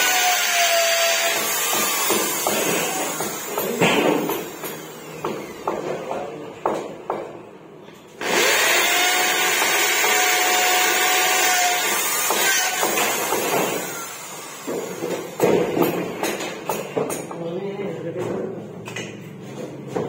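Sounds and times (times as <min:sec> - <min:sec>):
electric drill boring: 0:00.0 - 0:05.7, 0:08.2 - 0:15.4.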